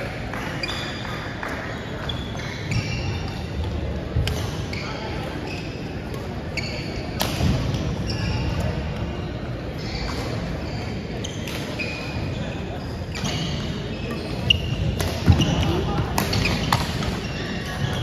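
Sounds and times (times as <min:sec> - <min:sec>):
racket hitting shuttlecock: 0:14.9 - 0:17.2.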